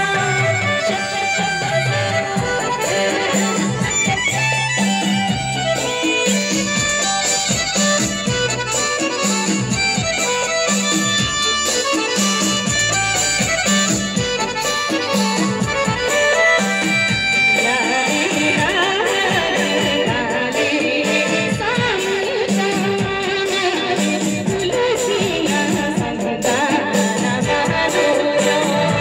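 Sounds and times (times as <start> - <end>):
folk music over sound system: 0.0 - 29.0
person singing: 17.6 - 29.0.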